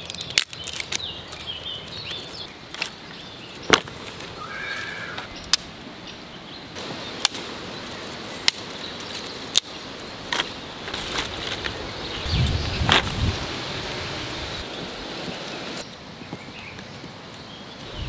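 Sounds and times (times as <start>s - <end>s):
twigs rustling and thumping: 0.0s - 4.4s, 8.4s - 13.4s
dry sticks cracking: 0.0s - 4.5s, 6.8s - 13.2s.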